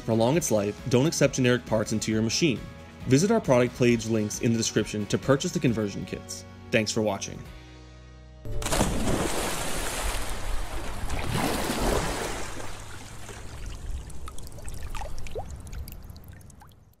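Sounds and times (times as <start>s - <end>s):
water splashing and trickling: 8.6s - 17.0s
small bubbling plops: 8.7s - 17.0s.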